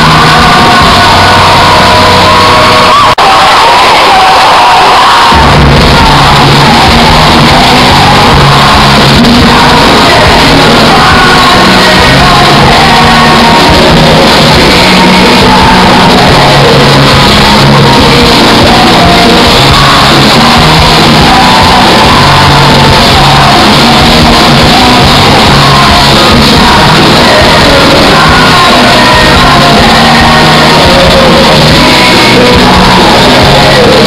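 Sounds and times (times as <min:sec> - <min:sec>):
live rock band: 0:00.0 - 0:34.0
person singing: 0:00.0 - 0:34.0.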